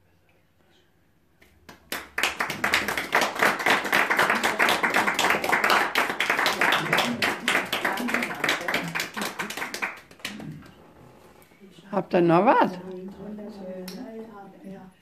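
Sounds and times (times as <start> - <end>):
people clapping: 1.4 - 11.4.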